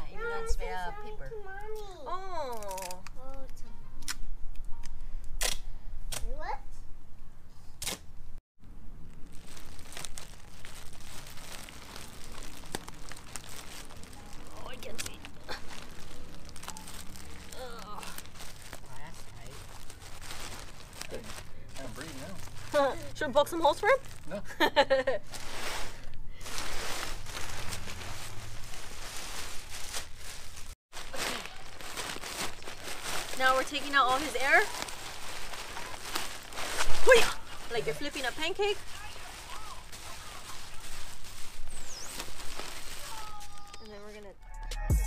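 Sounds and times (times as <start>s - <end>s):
plastic bag and newspaper crinkling: 2.3s - 3.4s, 8.9s - 24.4s, 25.0s - 44.2s.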